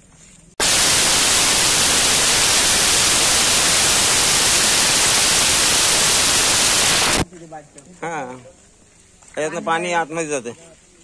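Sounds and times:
loud static hiss: 0:00.6 - 0:07.2.

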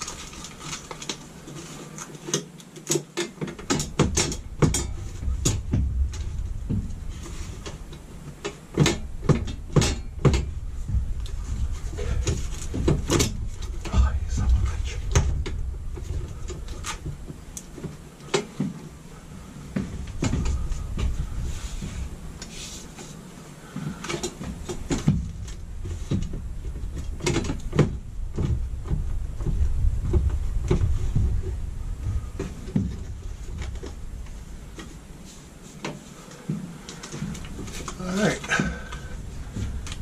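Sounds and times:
hands clicking and knocking fittings: 0:00.0 - 0:18.8
steady low rumble: 0:03.5 - 0:40.0.

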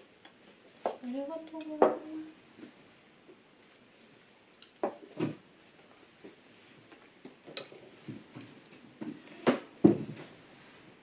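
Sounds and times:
cutlery and cups clinking on plates: 0:07.4 - 0:08.5.

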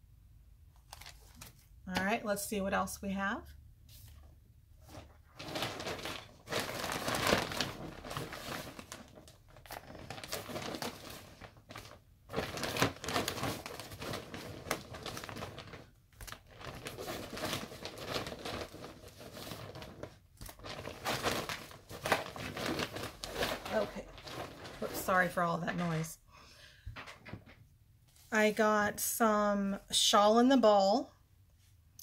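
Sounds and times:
shopping bag rustling: 0:04.8 - 0:26.1.

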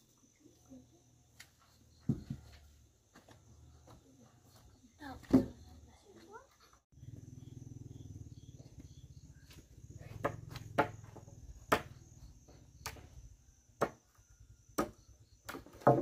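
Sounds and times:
crickets trilling: 0:06.9 - 0:16.0
wooden knocks of planks set down: 0:14.8 - 0:16.0.

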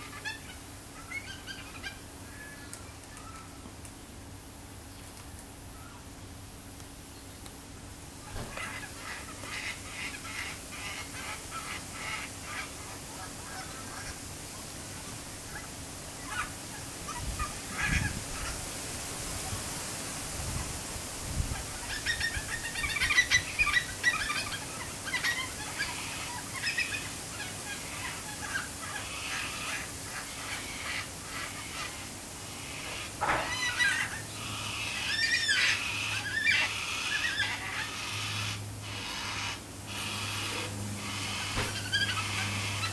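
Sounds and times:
cockatoo calling: 0:00.0 - 0:03.5, 0:08.2 - 0:14.3, 0:15.3 - 0:18.7, 0:21.5 - 0:42.9.

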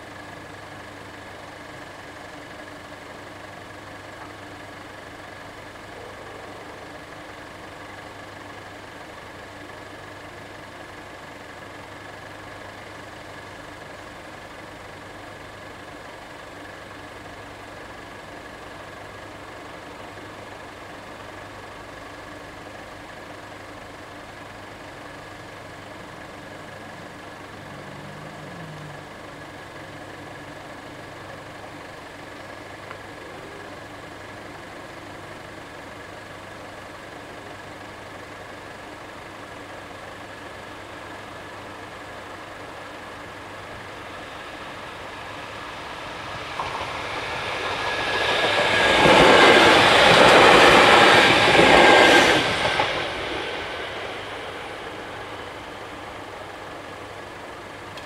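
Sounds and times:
high whine: 0:40.6 - 0:58.0
vehicle passing: 0:43.7 - 0:57.2.

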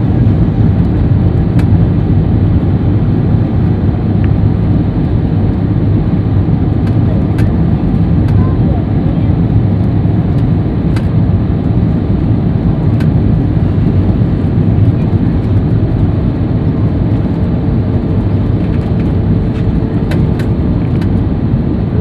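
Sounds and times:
aircraft cabin engine rumble: 0:00.0 - 0:22.0.

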